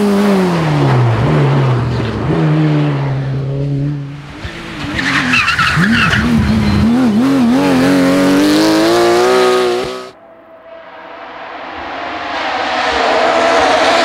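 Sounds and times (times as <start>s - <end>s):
race car engine revving: 0.0s - 10.2s, 11.1s - 14.0s
car engine approaching: 0.0s - 14.0s
tyres squealing: 4.4s - 7.9s.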